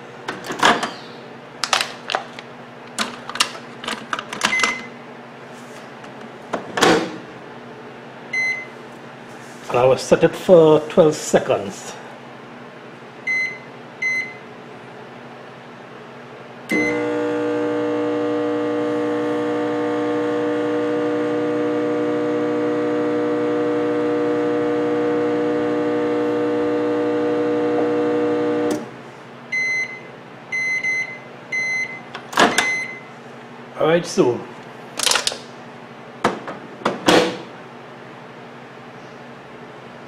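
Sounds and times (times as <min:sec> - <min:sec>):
microwave running hum: 0:00.0 - 0:40.0
microwave keypad beeps: 0:04.5 - 0:05.0, 0:08.4 - 0:08.7, 0:13.3 - 0:14.4, 0:29.5 - 0:33.1.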